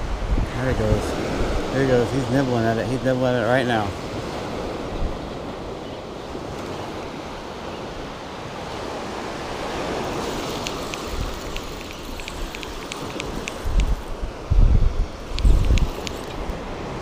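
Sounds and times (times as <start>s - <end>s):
wind buffeting microphone: 0.0s - 3.1s, 3.9s - 17.0s
surf washing up on beach: 0.0s - 17.0s
faint high ticks: 10.3s - 14.1s, 15.3s - 16.6s.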